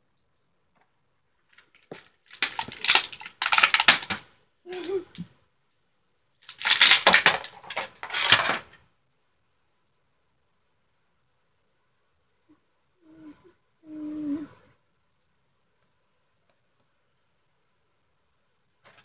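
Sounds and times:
plastic packaging crinkling: 0:01.5 - 0:04.2, 0:06.4 - 0:08.8.

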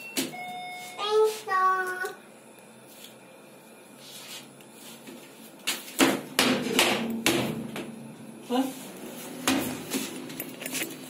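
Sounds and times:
child's voice holding a note: 0:01.0 - 0:02.2.

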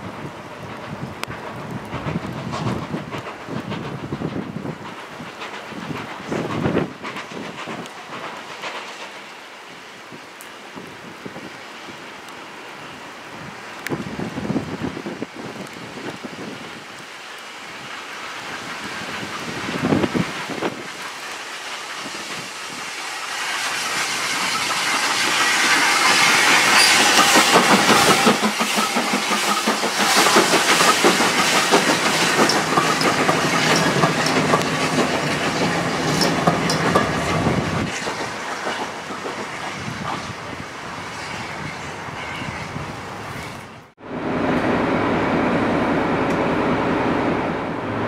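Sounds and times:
steam train passing: 0:00.0 - 0:48.0
steam hissing: 0:00.2 - 0:10.7, 0:16.3 - 0:43.4
wheels clicking over rail joints: 0:00.6 - 0:09.8, 0:23.7 - 0:40.2.

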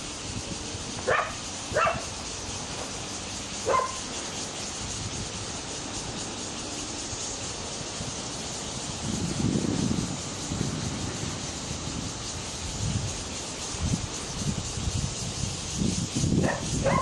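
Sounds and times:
dog barking: 0:01.0 - 0:02.1, 0:03.6 - 0:04.0, 0:16.4 - 0:17.0.

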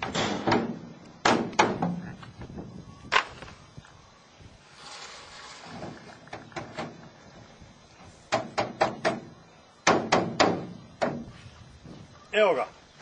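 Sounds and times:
sharp metallic knocks: 0:08.3 - 0:11.3.

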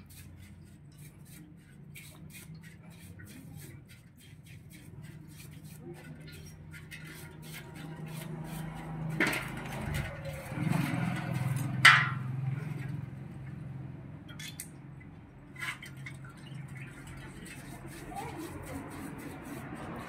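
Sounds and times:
metal piston parts clinking: 0:14.3 - 0:14.8.

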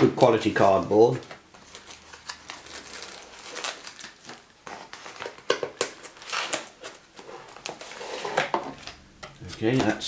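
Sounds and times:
plastic bag crinkling: 0:00.2 - 0:05.5
cardboard rubbing and scraping: 0:07.2 - 0:08.5.

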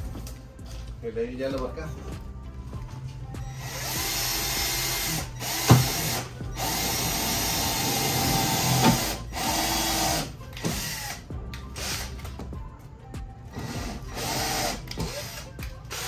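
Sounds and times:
cordless drill driving screws: 0:03.6 - 0:11.2, 0:13.5 - 0:16.0.

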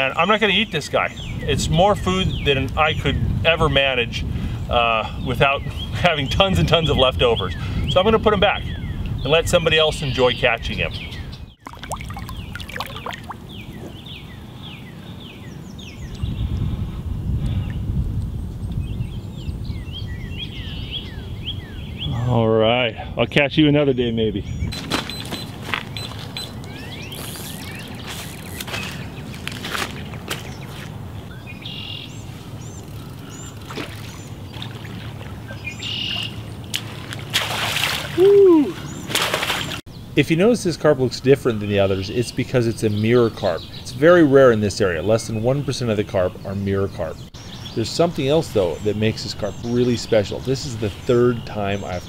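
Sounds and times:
buzzy trilled birdsong: 0:00.0 - 0:03.6, 0:04.6 - 0:16.7, 0:17.6 - 0:36.7, 0:38.3 - 0:52.0
bird singing falling notes: 0:05.5 - 0:16.5, 0:24.4 - 0:37.3
water sloshing and splashing: 0:11.6 - 0:13.9, 0:27.5 - 0:31.2, 0:33.4 - 0:38.2, 0:39.0 - 0:39.9
short high bird chirps: 0:24.6 - 0:29.0.

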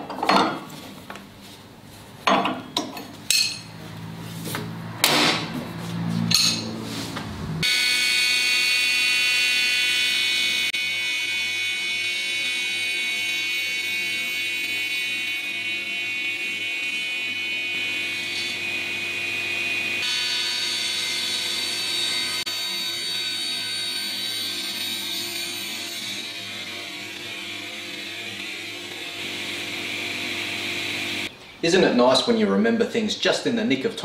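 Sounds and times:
spanners clinking on metal: 0:02.3 - 0:03.7
table saw whining: 0:07.6 - 0:31.3.

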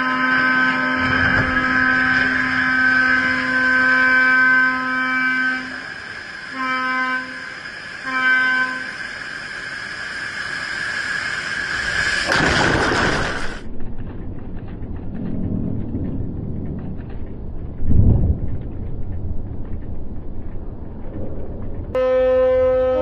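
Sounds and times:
ship's horn blasts: 0:00.0 - 0:09.0, 0:22.0 - 0:23.0
rushing noise: 0:00.0 - 0:22.0.

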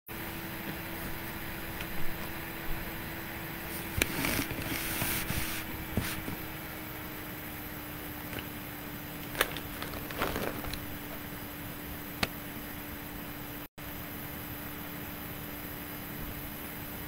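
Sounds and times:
steady low hum and hiss: 0:00.1 - 0:17.0
short scrape: 0:03.7 - 0:06.4
rustling handling noise: 0:03.7 - 0:06.5, 0:09.2 - 0:11.2.

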